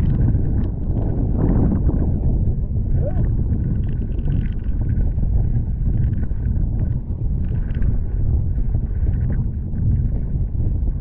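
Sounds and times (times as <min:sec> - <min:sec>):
water splashing against hull: 0:00.0 - 0:08.1
wind buffeting microphone: 0:00.0 - 0:11.0.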